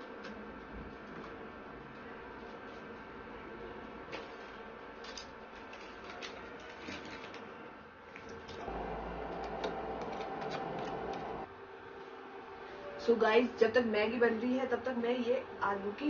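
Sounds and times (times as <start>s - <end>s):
induction cooktop hum: 0.0s - 14.0s
plastic packet crinkling: 5.0s - 7.5s.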